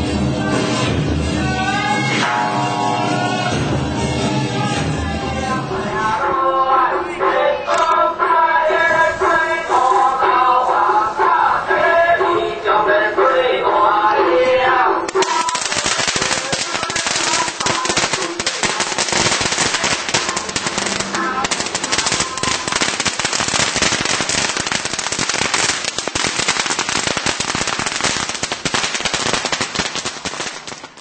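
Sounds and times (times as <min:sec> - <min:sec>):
firecrackers crackling: 0:15.1 - 0:31.0.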